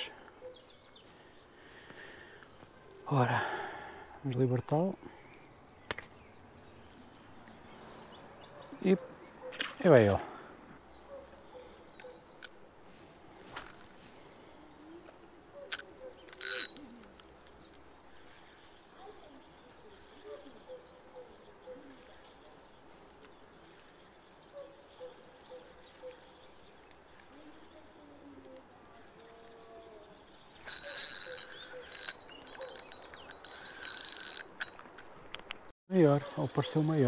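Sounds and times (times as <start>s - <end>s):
faint river ambience: 0.0s - 37.0s
fishing reel whirring: 16.4s - 16.8s, 30.6s - 34.5s.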